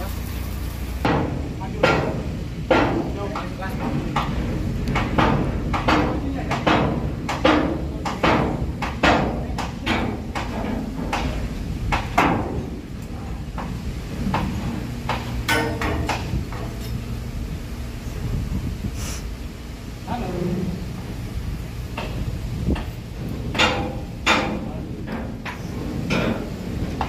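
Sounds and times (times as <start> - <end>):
low machinery hum: 0.0 - 27.0
hammer striking steel: 5.0 - 12.6, 15.1 - 16.6, 23.5 - 26.5.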